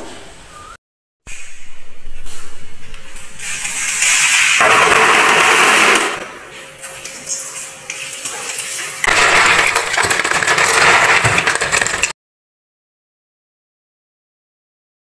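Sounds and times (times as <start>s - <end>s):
snails rattling in metal colander: 8.6s - 12.1s.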